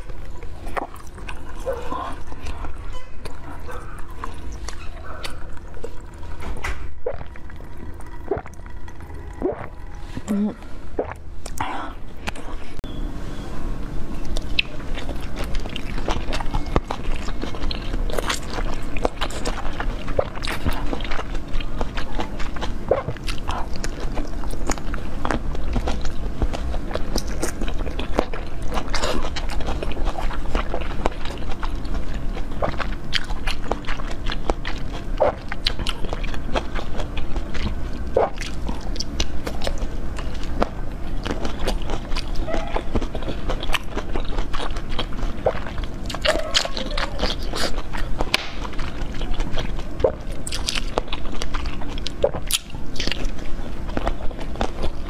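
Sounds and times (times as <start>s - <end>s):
chewing jelly sweets: 0.0s - 13.0s, 14.0s - 55.0s
steady low hum: 0.0s - 55.0s
mouth clicks and smacks: 9.3s - 12.5s, 38.2s - 53.3s.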